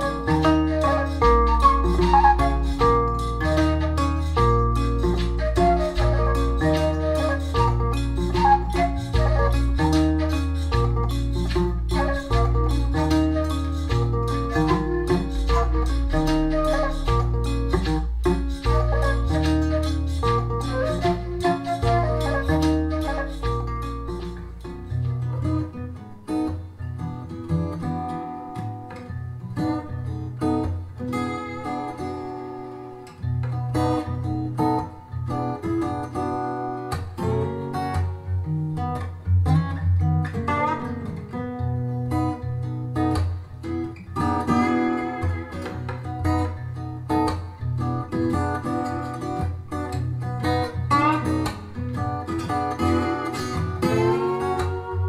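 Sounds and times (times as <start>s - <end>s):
bass line: 0.0s - 24.6s
acoustic guitar blues: 0.0s - 55.0s.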